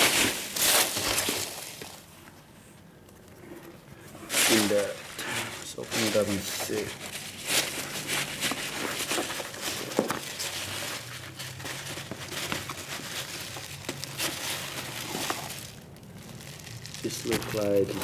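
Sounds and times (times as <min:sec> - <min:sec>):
packing peanuts rustling: 0:00.0 - 0:02.3, 0:04.1 - 0:18.0.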